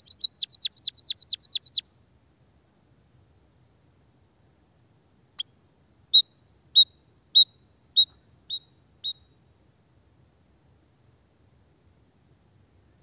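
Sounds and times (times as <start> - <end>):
bird high chirps: 0.0 - 1.8, 6.1 - 9.3.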